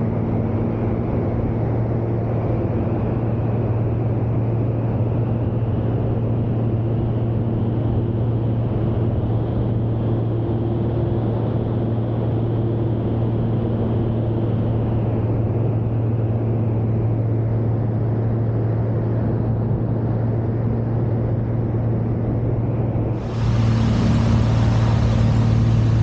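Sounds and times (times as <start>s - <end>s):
plane engine and propeller drone: 0.0s - 26.0s
rushing air: 23.2s - 26.0s.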